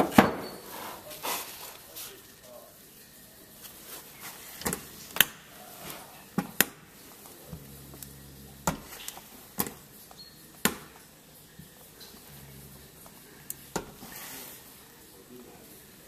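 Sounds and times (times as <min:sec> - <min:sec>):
low steady hum: 0:04.8 - 0:16.0.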